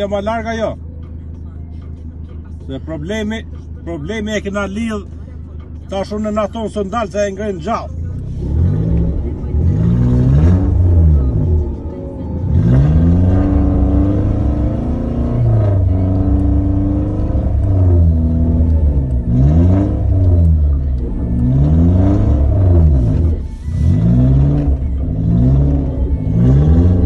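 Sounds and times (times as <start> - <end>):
car engine revving hard: 8.3 - 11.8, 12.4 - 27.0.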